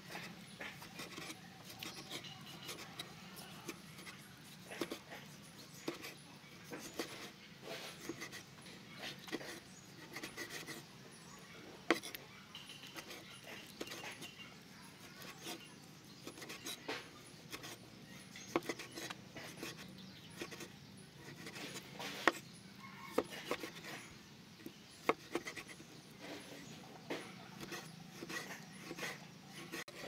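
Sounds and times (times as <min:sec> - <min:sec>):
cleaver chopping on wooden board: 0:27.1 - 0:30.0.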